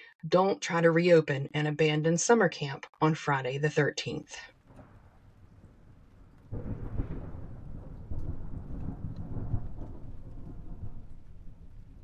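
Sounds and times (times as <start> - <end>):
thunder rumbling: 4.5 - 12.0.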